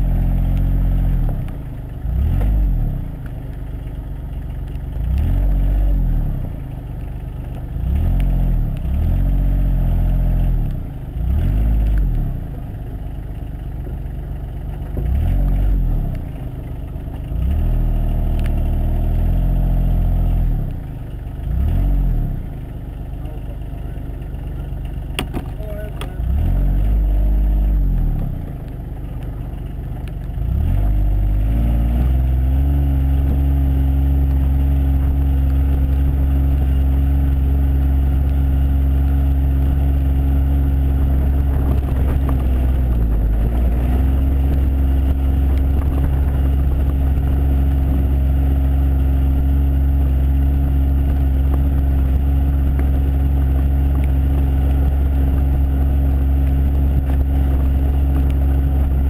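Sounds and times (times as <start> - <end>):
diesel engine revving: 0.0 - 3.2, 4.9 - 6.7, 7.7 - 12.6, 14.9 - 22.6, 24.4 - 28.7, 30.3 - 59.0.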